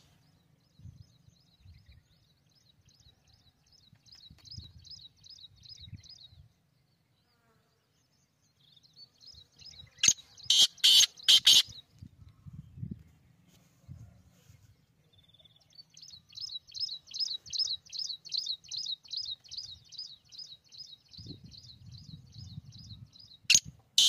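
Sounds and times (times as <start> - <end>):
francolin harsh calls: 10.0 - 11.8.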